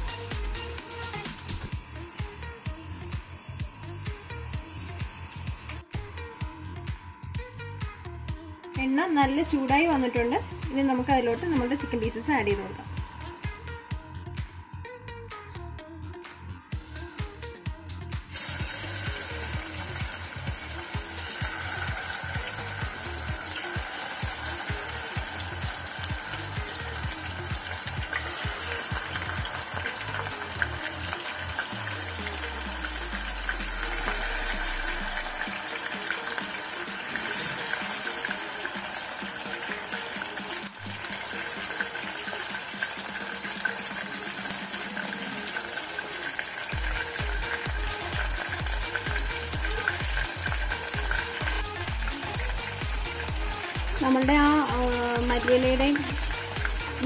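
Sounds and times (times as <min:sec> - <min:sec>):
background music with low beat: 0:00.0 - 0:57.0
chicken deep-frying in oil: 0:18.2 - 0:57.0.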